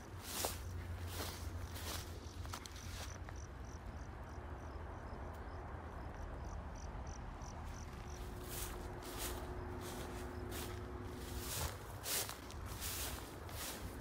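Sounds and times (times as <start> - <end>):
cricket chirping: 0.0 - 14.0
steady low rumble: 3.6 - 14.0.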